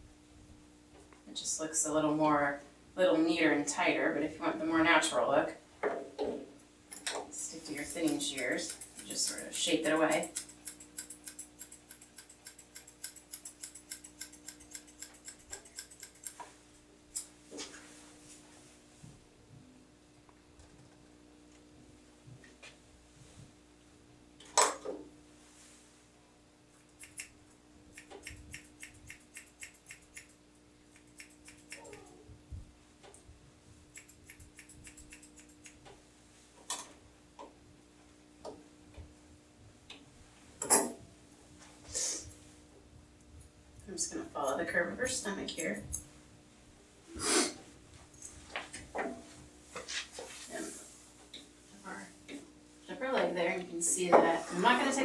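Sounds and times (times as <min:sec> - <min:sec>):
thinning shears snipping hair: 0:07.0 - 0:16.5, 0:26.7 - 0:32.1, 0:33.9 - 0:36.0
brief scrape: 0:47.2 - 0:47.6.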